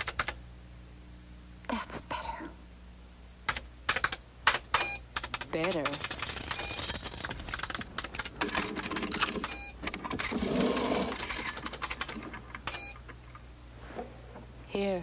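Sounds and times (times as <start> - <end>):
typewriter keys clacking: 0.0 - 0.4, 3.5 - 10.3, 11.1 - 12.7
typewriter carriage bell: 5.2 - 7.8.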